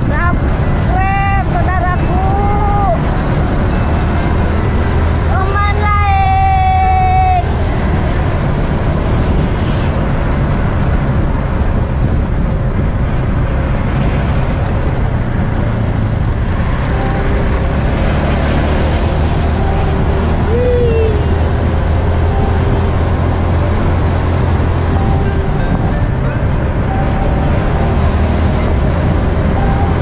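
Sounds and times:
vehicle engine and road noise: 0.0 - 30.0
wind noise: 0.0 - 30.0
wavering tone: 16.6 - 30.0.

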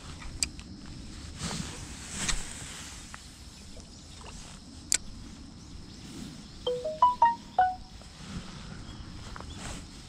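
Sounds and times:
short chime-like struck notes: 6.7 - 7.8.

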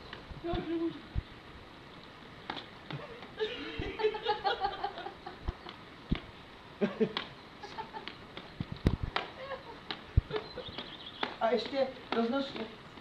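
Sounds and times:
person laughing: 2.9 - 5.7, 6.8 - 8.2, 9.2 - 10.8.

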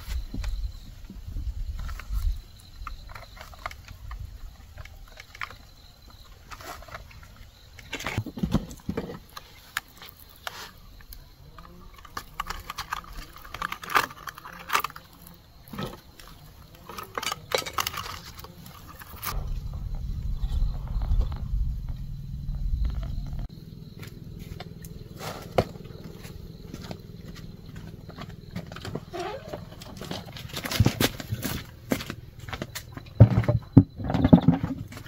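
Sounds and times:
bamboo sticks clicking and rattling: 2.8 - 19.4
irregular knocks: 19.3 - 23.5.

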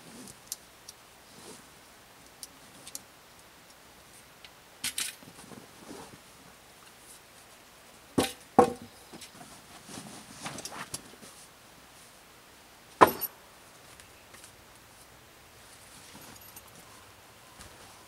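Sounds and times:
fabric rustling: 9.3 - 12.2.

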